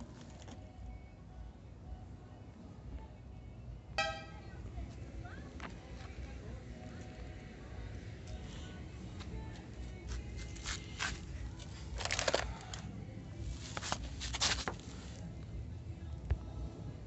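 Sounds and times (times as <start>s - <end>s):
rustling and scraping handling noise: 10.0s - 12.8s, 13.4s - 15.3s.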